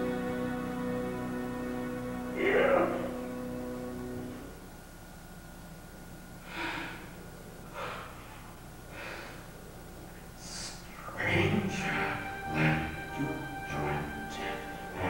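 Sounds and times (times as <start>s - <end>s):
steady low hum: 0.0s - 15.0s
person breathing heavily: 6.4s - 9.7s, 10.4s - 11.2s.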